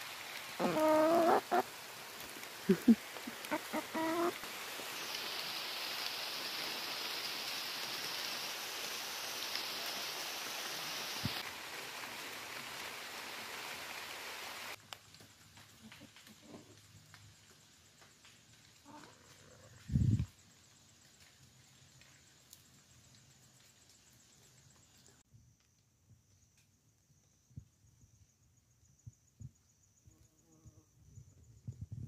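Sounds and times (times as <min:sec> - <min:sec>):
steady high hiss: 0:00.0 - 0:25.2
animal wavering cries: 0:00.6 - 0:01.6, 0:03.3 - 0:04.4.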